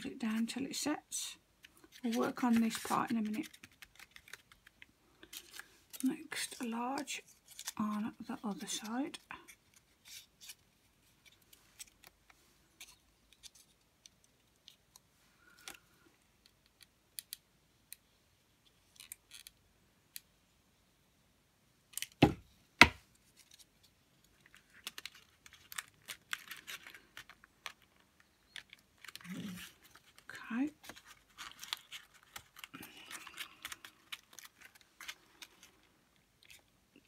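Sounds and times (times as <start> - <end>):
paper crackling and rustling: 1.6 - 13.8, 23.2 - 36.7.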